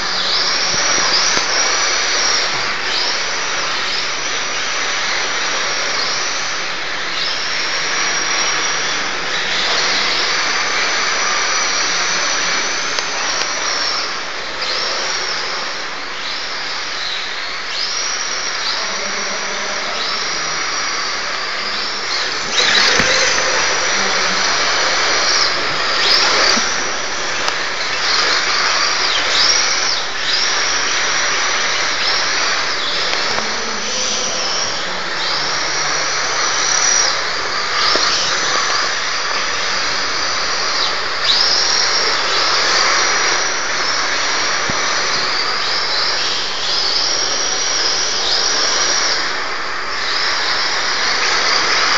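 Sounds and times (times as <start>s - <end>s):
small electric motor whining: 18.9s - 49.4s
tyres sliding on concrete: 21.7s - 30.0s.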